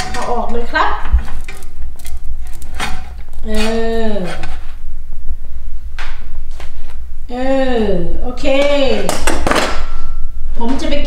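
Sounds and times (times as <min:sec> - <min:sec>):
steady low hum: 0:00.0 - 0:11.0
metal spatula scraping a frying pan: 0:02.5 - 0:04.6.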